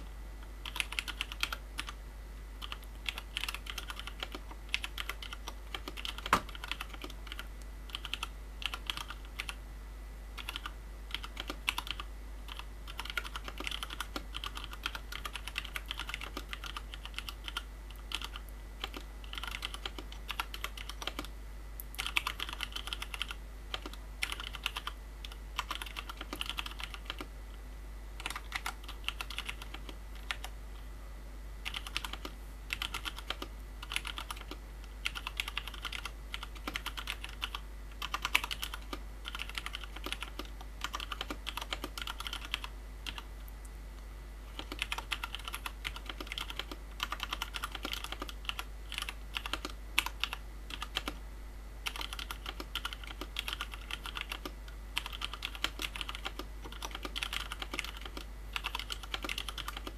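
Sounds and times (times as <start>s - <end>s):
keyboard typing clacks: 0.6s - 2.0s, 2.6s - 9.6s, 10.4s - 21.3s, 21.9s - 25.0s, 25.6s - 27.3s, 28.2s - 30.5s, 31.6s - 43.2s, 44.5s - 51.2s, 51.9s - 59.9s.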